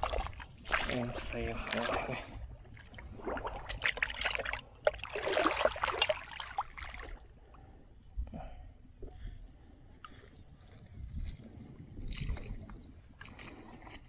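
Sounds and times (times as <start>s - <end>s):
pond water splashing: 0.0s - 7.7s, 12.0s - 14.0s.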